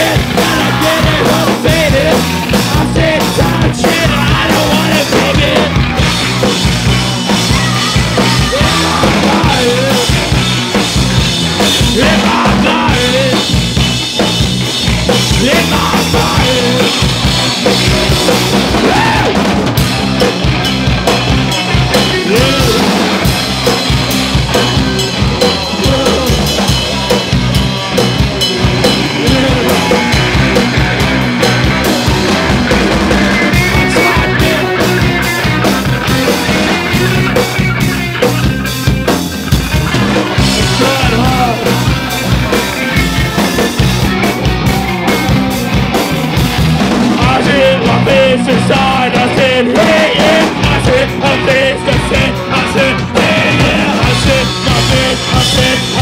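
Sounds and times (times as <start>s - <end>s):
punk rock band playing live: 0.0s - 56.0s.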